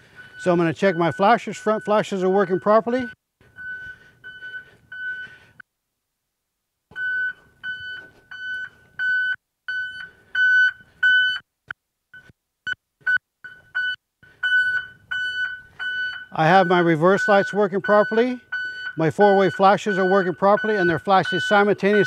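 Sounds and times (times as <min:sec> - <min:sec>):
reverse alarm beeping: 0:00.0 - 0:05.5, 0:06.9 - 0:11.4, 0:13.1 - 0:22.0.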